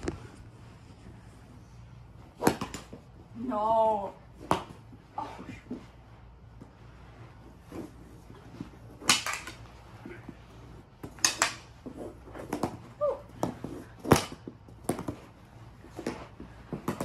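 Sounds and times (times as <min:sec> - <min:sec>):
hockey sticks clacking: 0:08.6 - 0:09.8, 0:11.0 - 0:12.8.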